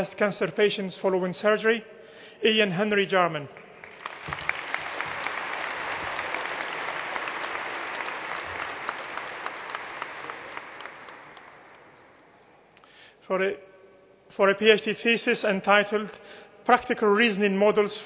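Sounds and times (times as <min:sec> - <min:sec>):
audience clapping: 0:03.6 - 0:12.5.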